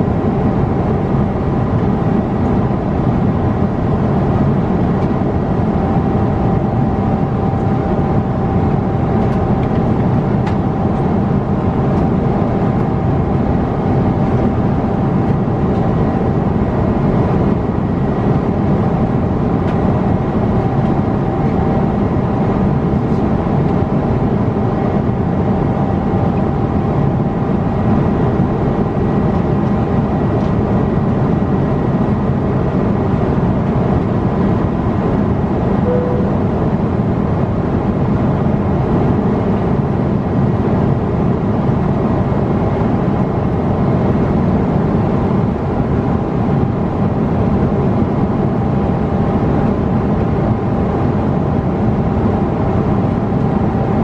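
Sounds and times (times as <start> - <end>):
faint steady whine: 35.7 - 37.5.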